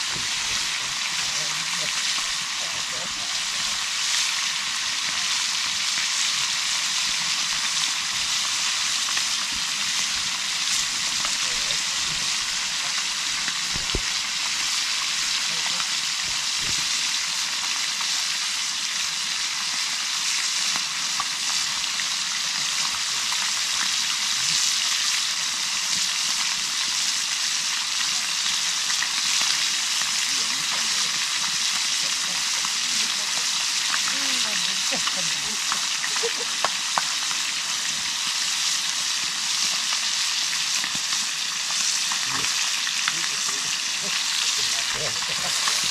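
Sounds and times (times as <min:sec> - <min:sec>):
fish sizzling in hot oil: 0:00.0 - 0:45.9
sharp oil pops: 0:13.7 - 0:14.2.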